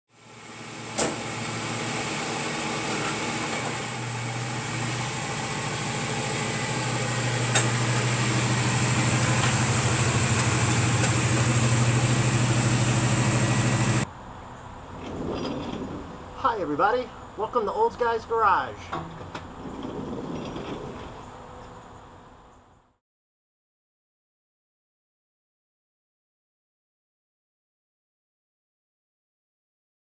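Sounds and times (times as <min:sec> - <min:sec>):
car engine running: 0:00.2 - 0:14.0.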